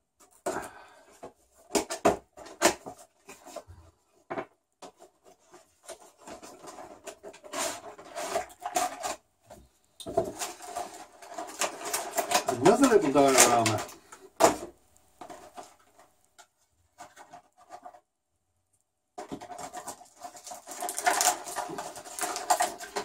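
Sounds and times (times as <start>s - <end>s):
plastic crinkling and rustling: 0.2s - 18.0s, 19.2s - 23.0s
cardboard clicks and scrapes: 4.3s - 18.0s, 19.2s - 23.0s.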